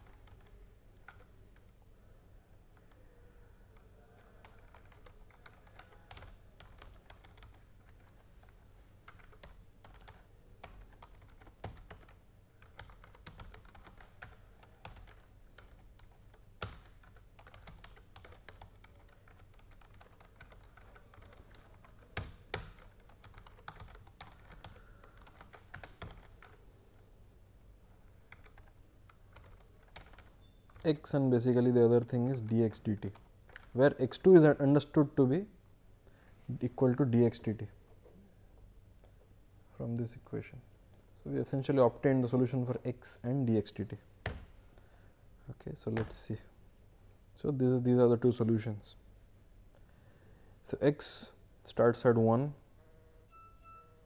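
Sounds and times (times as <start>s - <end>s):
keyboard typing: 0.0s - 1.8s, 3.7s - 26.6s, 28.1s - 31.0s, 33.0s - 33.8s.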